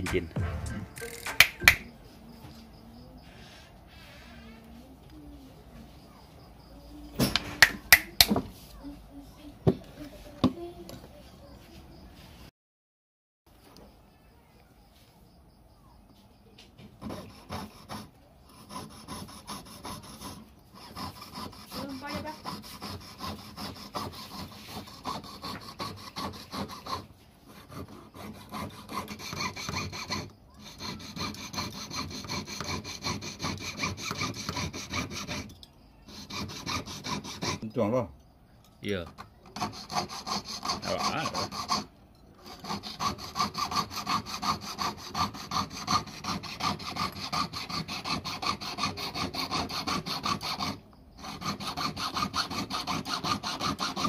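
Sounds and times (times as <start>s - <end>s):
saw rasping through metal: 17.0s - 37.7s, 39.2s - 54.0s.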